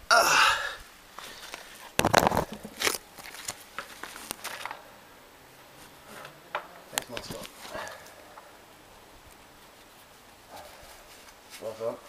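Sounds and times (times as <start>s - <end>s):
camera handling rustle: 1.2s - 4.8s
clicks crackles and knocks: 1.5s - 4.8s.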